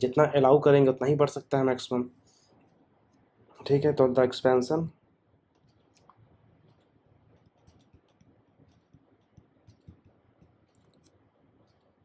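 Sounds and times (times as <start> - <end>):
stylus tapping on tablet screen: 5.6 - 11.9.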